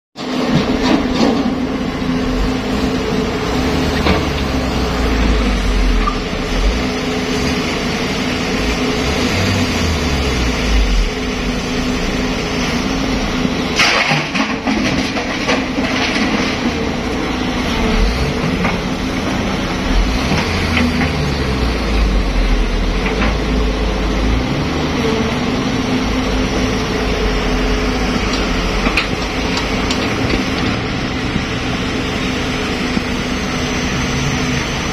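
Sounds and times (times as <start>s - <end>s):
excavator diesel engine rumble: 0.2s - 34.9s
dirt and rock clattering into steel bed: 13.6s - 17.0s.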